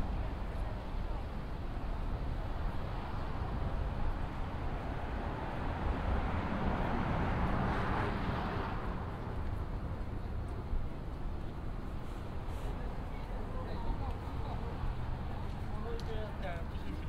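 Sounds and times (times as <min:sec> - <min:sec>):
low rumble of street traffic: 0:00.0 - 0:17.0
vehicle passing by: 0:04.8 - 0:09.2.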